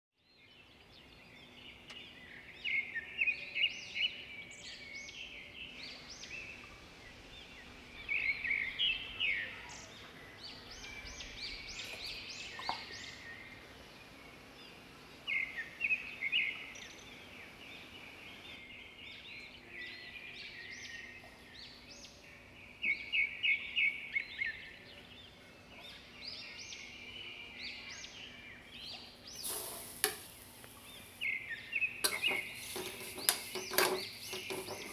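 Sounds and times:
birds chirping: 0.4s - 34.9s.

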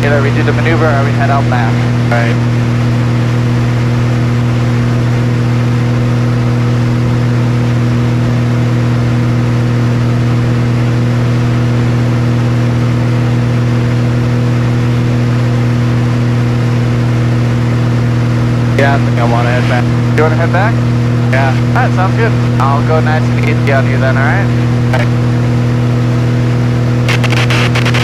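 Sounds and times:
propeller plane engine drone: 0.0s - 28.0s.

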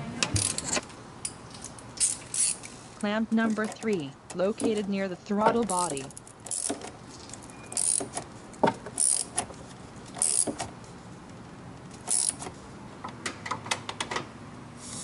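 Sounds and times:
hand ratchet clicking: 2.0s - 2.7s, 5.7s - 6.9s, 7.7s - 8.2s, 8.9s - 9.5s, 10.2s - 10.7s, 12.0s - 12.5s.

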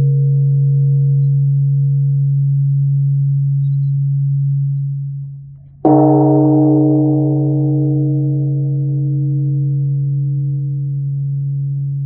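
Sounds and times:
large temple bell ringing: 0.0s - 3.4s, 5.8s - 12.0s.

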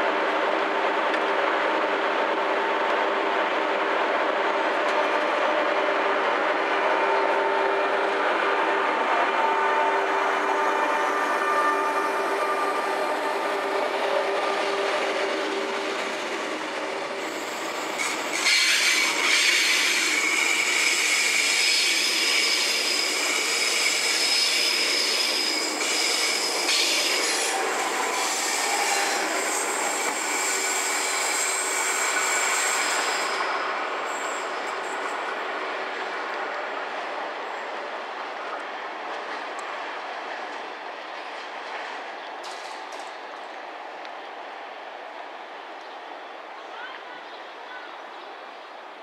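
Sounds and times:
train rolling: 0.0s - 49.0s
train wheels squealing: 9.8s - 35.5s.

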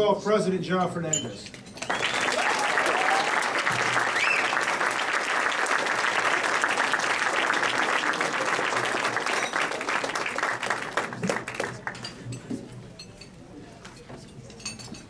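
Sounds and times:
crowd applauding: 1.8s - 12.2s.

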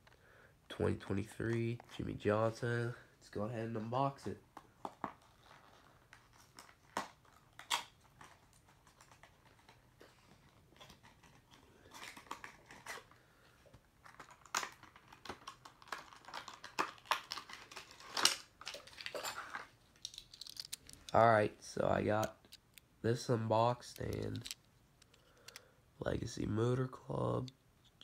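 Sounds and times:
packaging clicks and taps: 23.9s - 25.6s.

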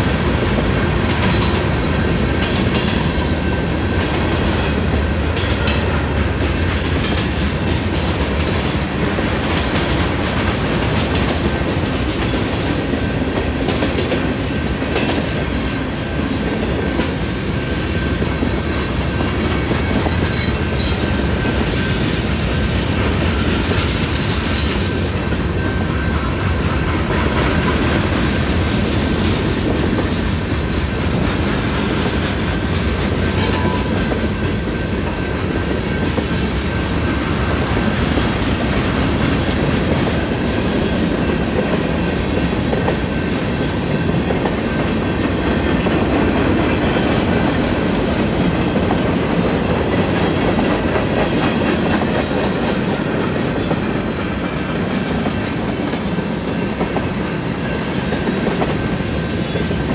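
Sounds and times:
freight train wheels on rails: 0.0s - 59.9s
crossing bells ringing: 33.3s - 35.1s.

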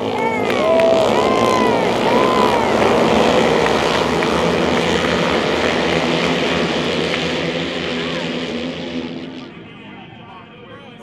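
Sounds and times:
motorcycles racing past: 0.0s - 10.0s.

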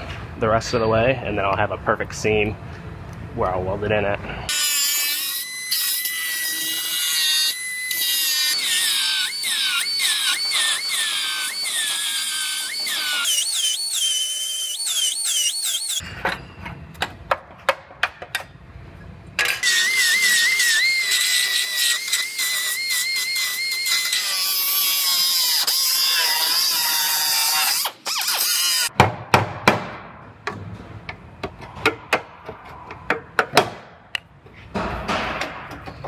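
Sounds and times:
belt sander grinding metal: 4.5s - 16.0s, 19.4s - 28.9s.

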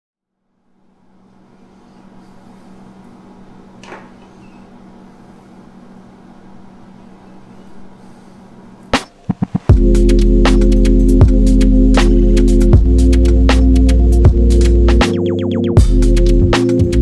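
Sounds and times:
ventilation fan humming: 0.3s - 15.0s.

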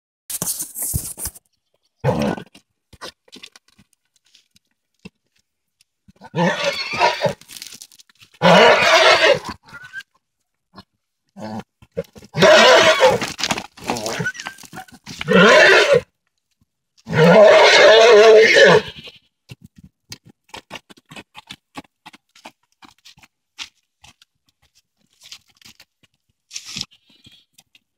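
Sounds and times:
horses calling: 11.6s - 16.1s, 17.1s - 19.2s.

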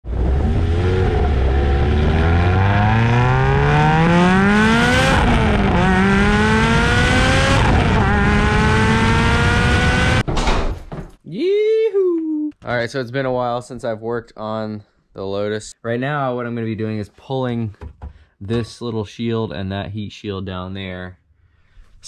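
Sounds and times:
car engine accelerating hard: 0.0s - 10.2s.

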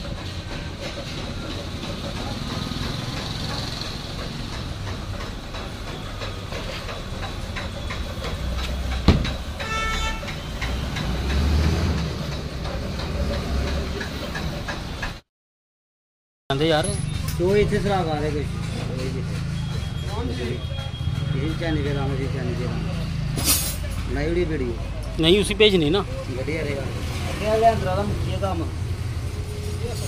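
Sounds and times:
sharp knock: 8.6s - 11.1s.

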